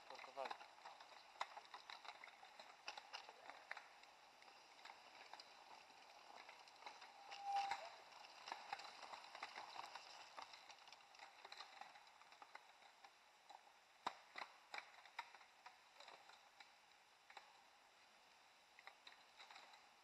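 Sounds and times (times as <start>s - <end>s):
mountain bikes passing on dirt: 0.0s - 17.6s
light clicks and ticks: 0.0s - 17.8s, 18.6s - 20.0s.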